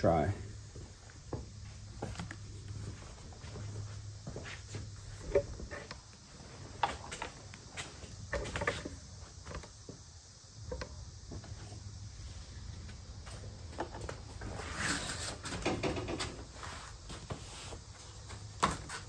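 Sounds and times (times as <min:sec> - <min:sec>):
handling knocks clicks and rustles: 0:00.8 - 0:10.0.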